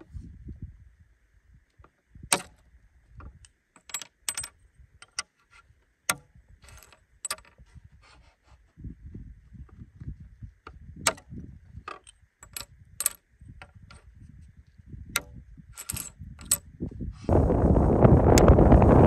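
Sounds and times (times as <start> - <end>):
wind buffeting microphone: 0.0 - 1.0, 8.7 - 11.9, 12.7 - 19.0
glass pieces clinking on wood: 15.8 - 16.6.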